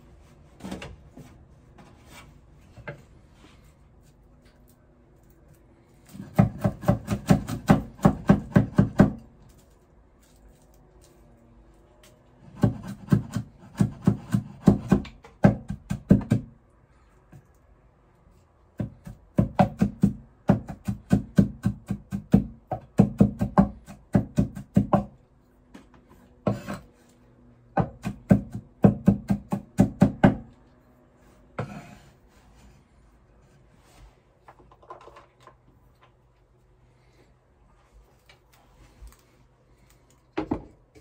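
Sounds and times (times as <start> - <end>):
cleaver chopping on wooden board: 6.2 - 9.2, 12.6 - 16.5, 18.8 - 25.2, 27.8 - 30.5.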